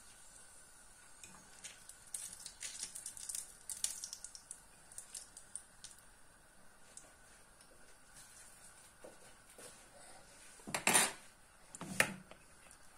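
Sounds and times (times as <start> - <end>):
hot oil crackling and popping: 0.0 - 8.2.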